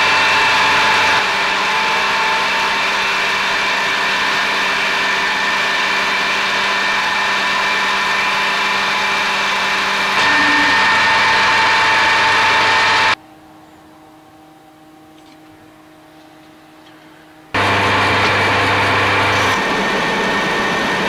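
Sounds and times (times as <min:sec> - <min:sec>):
metal lathe whining: 0:00.0 - 0:13.2, 0:17.6 - 0:21.0.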